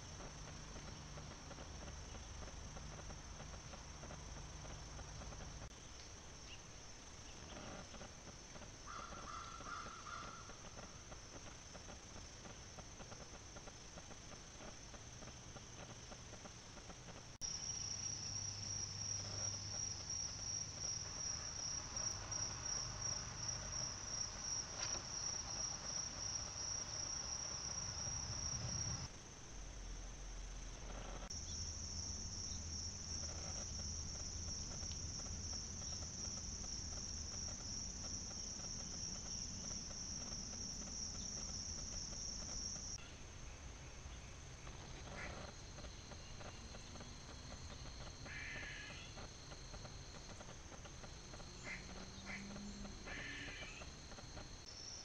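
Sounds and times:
insects calling: 0:00.0 - 0:55.0.

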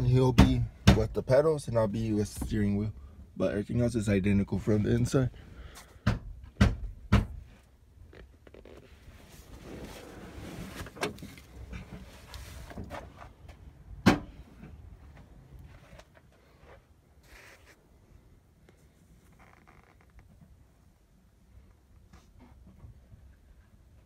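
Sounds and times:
knocks and thumps in vehicle cab: 0:00.3 - 0:01.3, 0:06.0 - 0:07.6.

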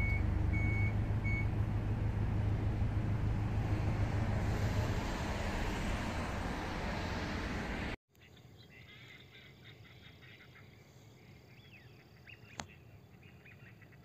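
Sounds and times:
reversing alarm beeps: 0:00.0 - 0:01.5
engine low hum: 0:00.0 - 0:08.0
broad rushing noise: 0:02.9 - 0:08.0.

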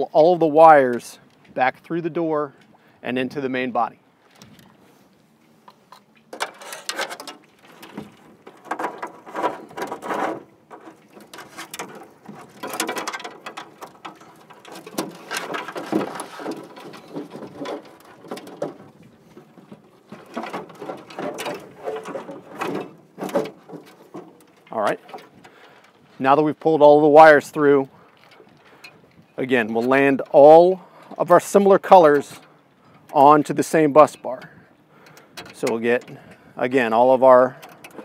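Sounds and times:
wires scraping against plastic: 0:06.3 - 0:25.9.

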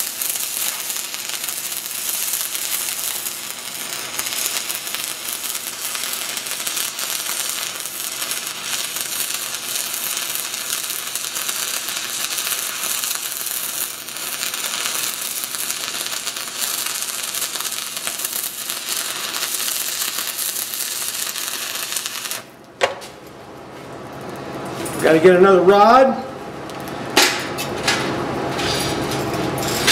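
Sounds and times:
welding arc crackling: 0:00.0 - 0:22.7.

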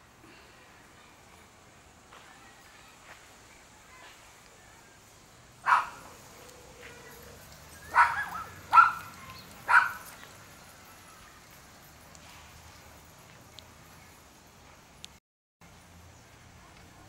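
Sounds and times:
dog barking: 0:05.6 - 0:07.0, 0:07.8 - 0:10.1.

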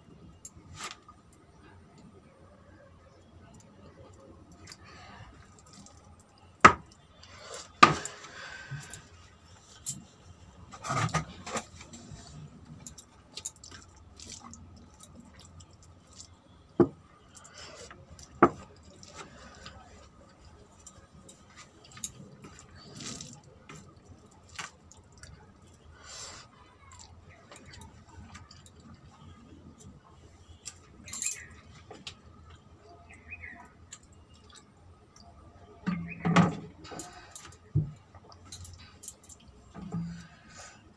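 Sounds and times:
eating sounds: 0:11.9 - 0:16.5, 0:17.1 - 0:30.3.

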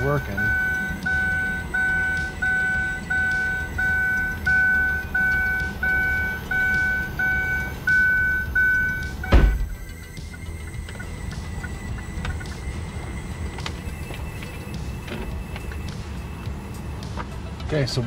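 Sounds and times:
car warning chime: 0:00.0 - 0:10.0.

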